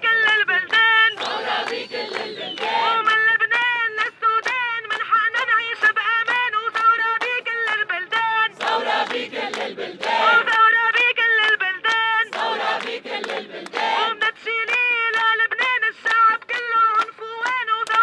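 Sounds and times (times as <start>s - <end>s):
crowd singing a chant: 0.0s - 3.7s, 7.8s - 15.4s
lead voice through a megaphone: 0.0s - 18.0s.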